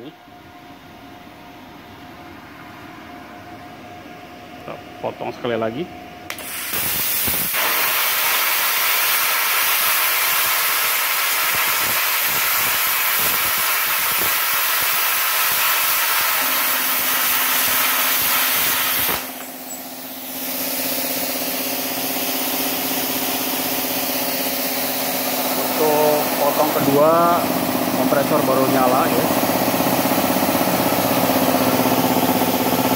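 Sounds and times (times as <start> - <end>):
air compressor humming: 0.0 - 32.9
plasma cutter hissing: 6.3 - 29.5.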